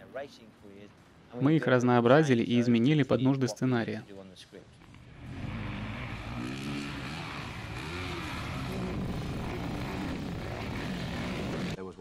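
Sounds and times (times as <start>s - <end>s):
vehicle engines at speed: 4.8s - 11.8s
tyre and wind noise: 7.0s - 11.8s.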